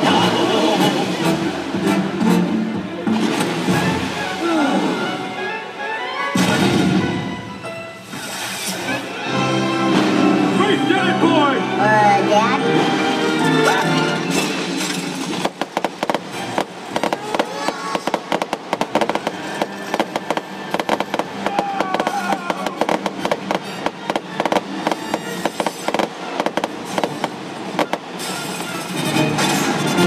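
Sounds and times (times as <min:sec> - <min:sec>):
music playing: 0:00.0 - 0:30.0
fireworks popping and crackling: 0:08.0 - 0:09.0, 0:14.2 - 0:30.0.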